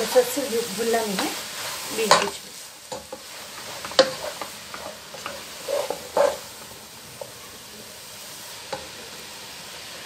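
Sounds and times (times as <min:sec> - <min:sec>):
carrots sizzling in a pot: 0:00.0 - 0:10.0
spatula clacking on a pot: 0:02.1 - 0:06.6.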